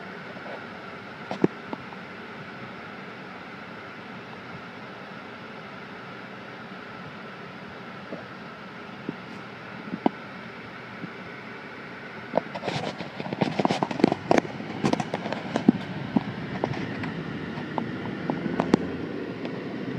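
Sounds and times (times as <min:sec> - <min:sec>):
engine and road hum: 0:00.0 - 0:19.9
sharp clicks and knocks: 0:12.4 - 0:19.6.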